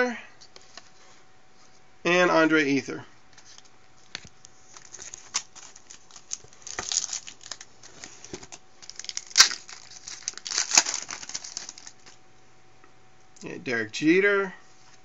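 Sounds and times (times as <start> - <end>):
foil wrapper snapping: 4.7 - 12.2
foil wrapper tearing and crinkling: 4.7 - 12.2.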